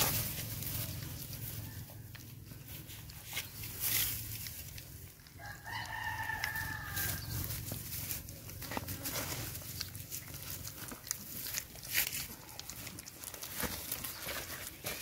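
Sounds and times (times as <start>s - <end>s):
rooster crowing: 5.4s - 7.4s.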